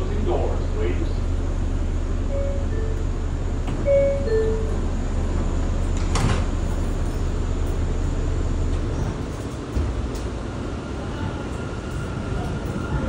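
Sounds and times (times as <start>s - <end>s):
steady low hum: 0.0s - 13.0s
sliding doors closing: 3.6s - 7.3s
two-tone door chime: 3.8s - 4.8s.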